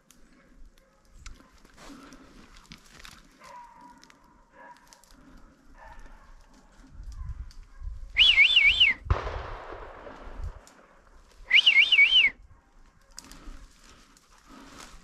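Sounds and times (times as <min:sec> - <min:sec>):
loud warbling whistles: 0:08.2 - 0:09.1, 0:11.5 - 0:12.4
gunshot with echoing tail: 0:09.1 - 0:11.1.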